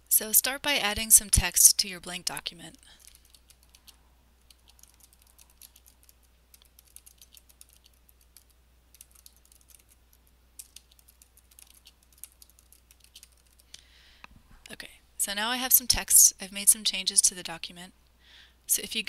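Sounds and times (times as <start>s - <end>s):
faint keyboard typing: 2.8s - 13.8s.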